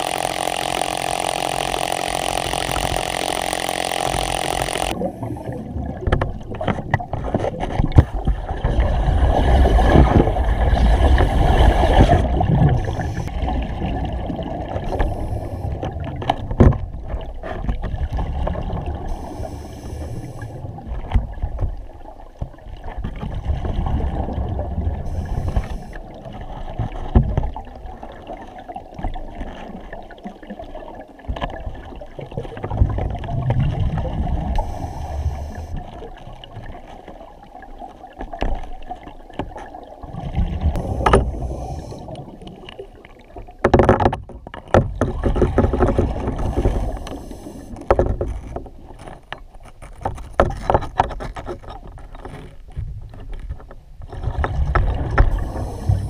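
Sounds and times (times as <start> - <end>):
exhaled bubbles rumbling: 4.9 - 19.5, 20.1 - 49.0, 54.0 - 56.0
breaths through demand valve: 40.8 - 42.3, 55.4 - 56.0.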